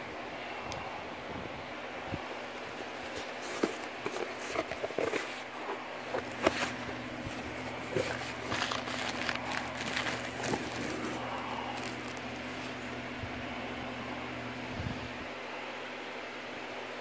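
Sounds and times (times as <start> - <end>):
cardboard flaps rustling and scraping: 2.5 - 13.0.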